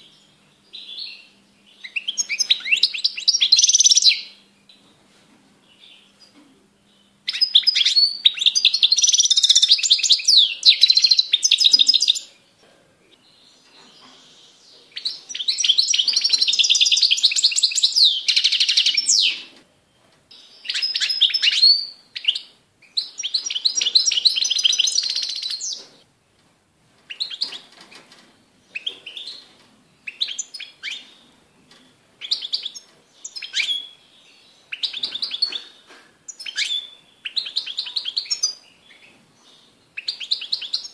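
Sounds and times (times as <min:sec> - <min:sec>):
finch twittering song: 0:00.0 - 0:04.8, 0:06.9 - 0:12.4, 0:20.3 - 0:26.0, 0:28.7 - 0:40.9.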